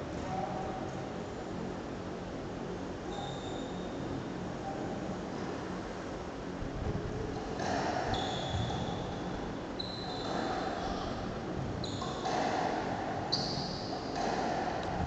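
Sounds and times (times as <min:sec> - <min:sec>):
shoes squeaking on court floor: 0:08.0 - 0:09.1, 0:09.8 - 0:10.9, 0:11.8 - 0:12.4
squash ball hitting walls: 0:12.2 - 0:13.1, 0:14.0 - 0:15.0.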